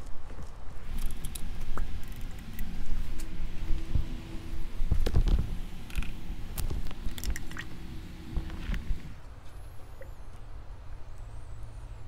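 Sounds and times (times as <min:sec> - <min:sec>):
rubber bulb baster creaks and clicks: 0:04.9 - 0:07.8.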